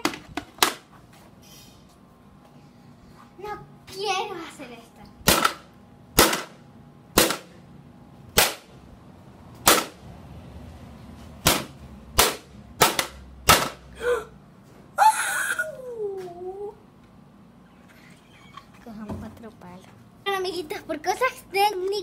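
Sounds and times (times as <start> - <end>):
pole smacking on a box: 11.4 - 13.8.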